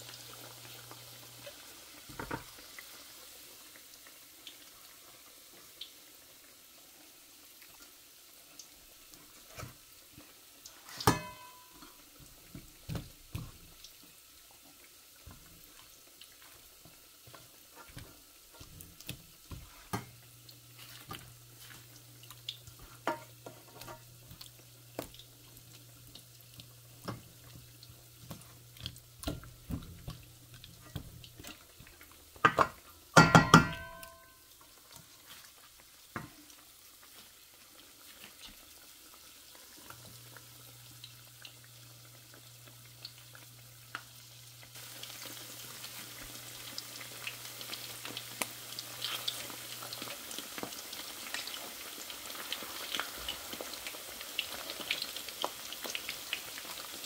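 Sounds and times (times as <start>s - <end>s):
utensils and dishes clinking: 10.9s - 12.0s, 32.5s - 34.4s.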